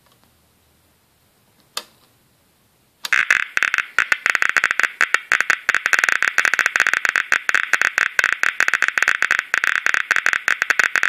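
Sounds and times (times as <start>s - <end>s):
radiation meter clicking crackle: 3.0s - 11.0s.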